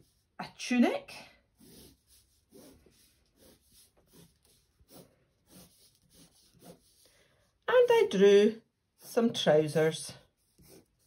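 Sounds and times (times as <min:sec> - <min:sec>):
pencil scratching on paper: 0:00.0 - 0:00.7, 0:01.4 - 0:11.0.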